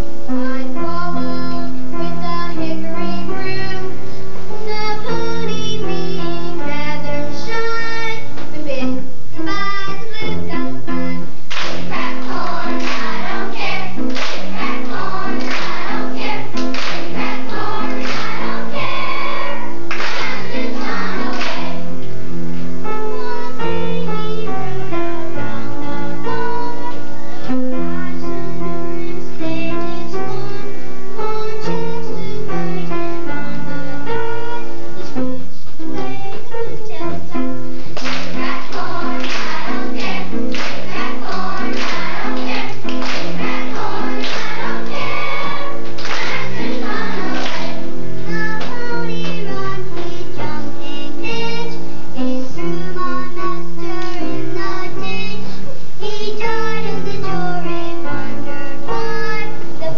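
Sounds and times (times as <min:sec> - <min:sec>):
children's choir singing: 0:00.0 - 0:08.8, 0:09.4 - 0:22.2, 0:22.8 - 0:59.9
children clapping in rhythm: 0:11.5 - 0:21.8, 0:38.0 - 0:47.8, 0:48.6 - 0:49.4.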